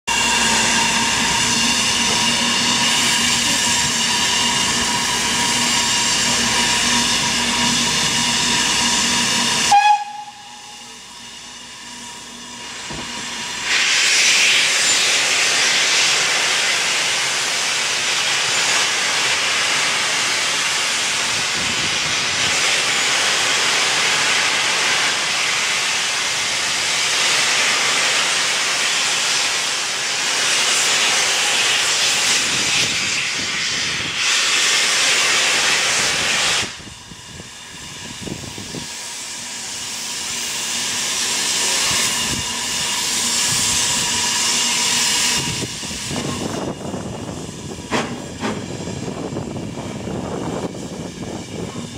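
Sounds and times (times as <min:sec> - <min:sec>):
steam locomotive hissing: 0:00.1 - 0:51.9.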